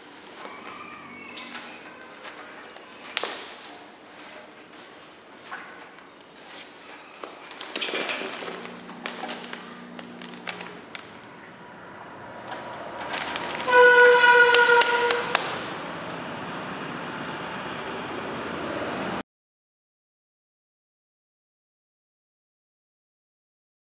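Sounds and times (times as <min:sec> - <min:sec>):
dry stalks crackling and rustling: 0:00.0 - 0:11.4, 0:12.4 - 0:16.0
loud humming tone: 0:07.8 - 0:19.2.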